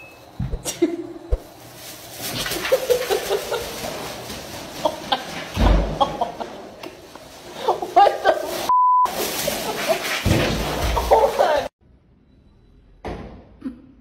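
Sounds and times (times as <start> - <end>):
person laughing in chuckles: 2.4 - 3.9.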